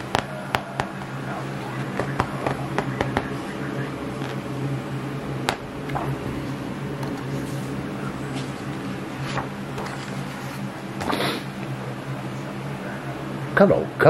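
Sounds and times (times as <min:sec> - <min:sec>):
steady low hum: 0:00.0 - 0:14.0
book pages turning: 0:05.9 - 0:11.3.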